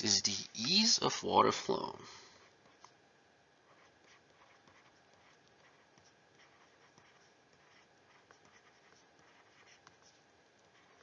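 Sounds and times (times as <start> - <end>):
stylus scratching on tablet screen: 2.4 - 11.0.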